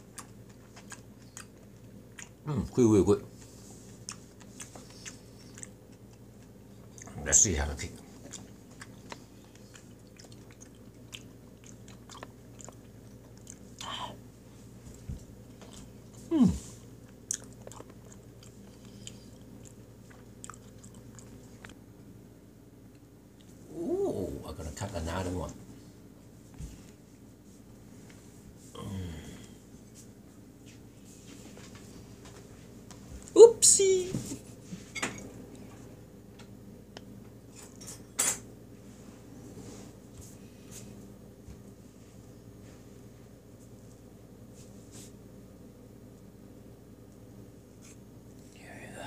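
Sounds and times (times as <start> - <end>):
chewing soft cake: 0.0 - 22.2, 47.0 - 48.7.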